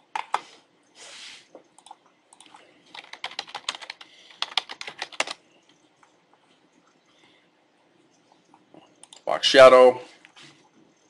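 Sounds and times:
computer keyboard typing: 1.8s - 5.8s.

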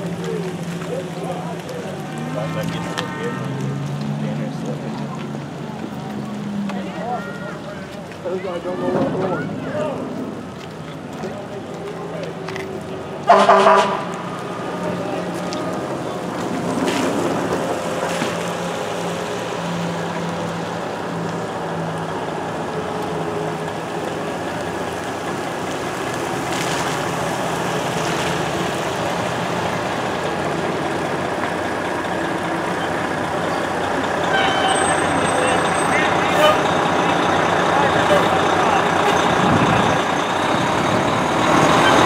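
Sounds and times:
fire engine: 0.0s - 42.0s
trucks driving on wet pavement: 0.0s - 42.0s.

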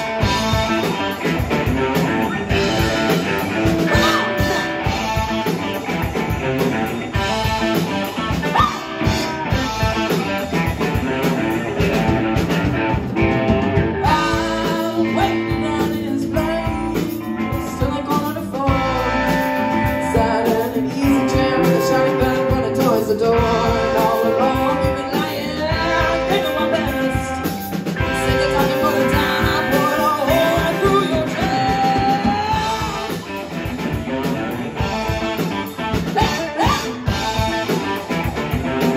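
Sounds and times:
person singing: 0.0s - 5.6s, 14.0s - 33.4s, 34.4s - 38.5s
drum kit beat: 0.0s - 38.9s
electric guitars: 0.0s - 38.9s.

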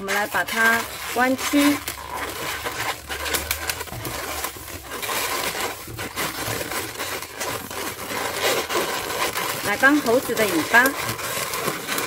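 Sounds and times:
latex balloon rubbing: 0.0s - 12.0s.

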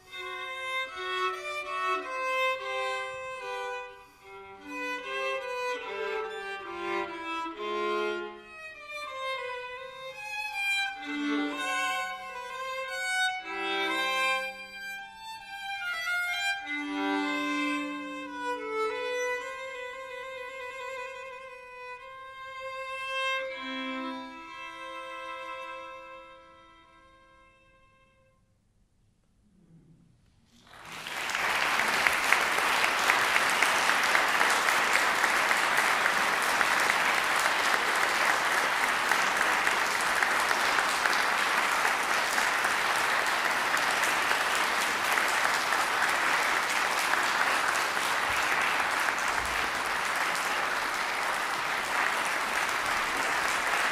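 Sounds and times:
audience applause: 30.6s - 53.9s.

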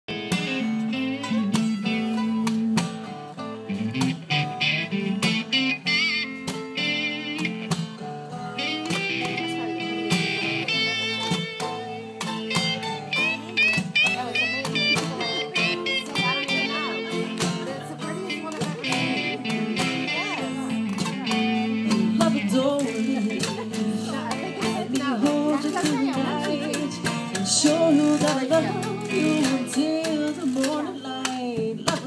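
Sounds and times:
acoustic guitar: 0.1s - 32.0s
electric lead guitar bending notes: 0.1s - 32.0s
mandolin: 0.1s - 32.0s
washboard clicking beat: 8.6s - 16.7s, 18.3s - 20.1s.

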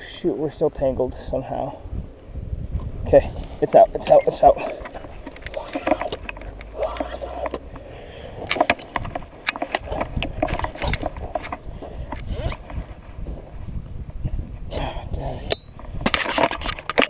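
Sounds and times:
landing net being handled: 4.0s - 7.7s, 8.4s - 13.0s.

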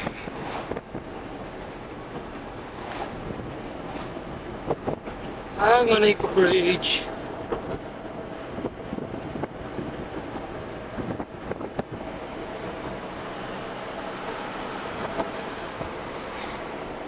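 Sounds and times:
car road and wind noise: 0.0s - 17.0s.

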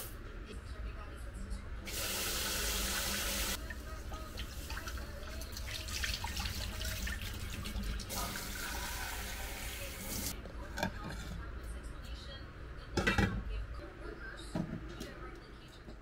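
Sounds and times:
water poured into steel sink: 4.2s - 10.3s.

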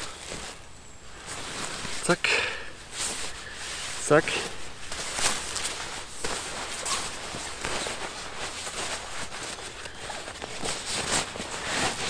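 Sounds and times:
nylon jacket fabric rustling: 0.0s - 12.0s.

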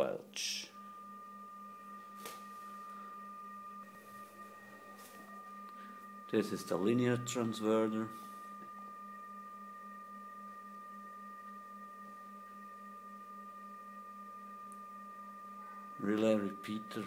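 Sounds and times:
faint pulsing low hum: 0.0s - 17.0s
high-pitched electronic tone: 0.0s - 17.0s
weaker higher tone: 0.0s - 17.0s.

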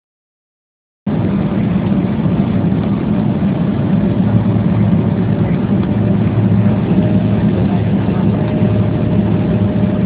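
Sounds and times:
jet airliner cabin noise: 1.1s - 10.0s.

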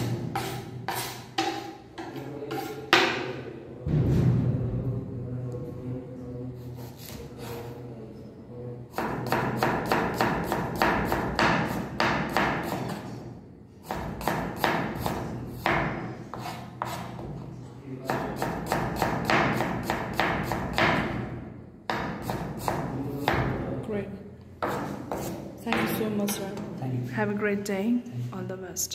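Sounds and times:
knife chopping on wooden board: 9.0s - 13.0s, 13.8s - 17.2s, 18.1s - 21.0s, 21.9s - 23.4s, 24.6s - 26.0s.

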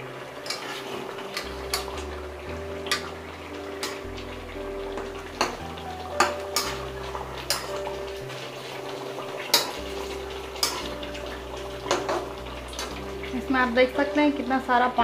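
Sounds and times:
stirring in gravy: 0.3s - 13.7s
spatula clacking on metal pan: 0.4s - 0.7s, 1.3s - 2.0s, 2.8s - 3.1s, 6.2s - 6.8s, 7.4s - 7.8s, 9.4s - 9.9s, 10.6s - 11.0s, 11.8s - 13.0s.

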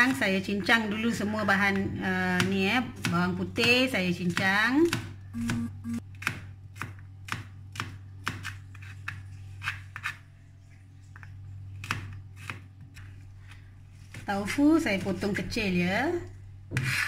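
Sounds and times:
knife chopping on plastic board: 1.7s - 10.1s.

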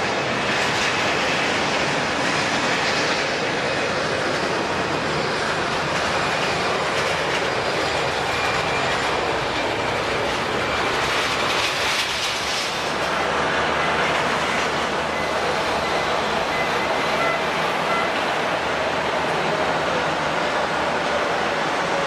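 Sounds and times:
jet engines running: 0.0s - 22.0s.

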